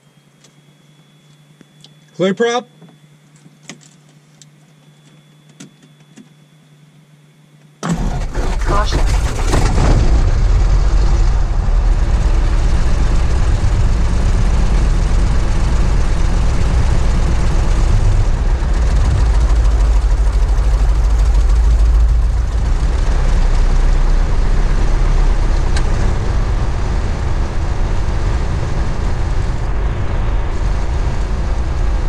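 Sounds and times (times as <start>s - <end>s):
airplane engine idling: 7.8s - 32.0s.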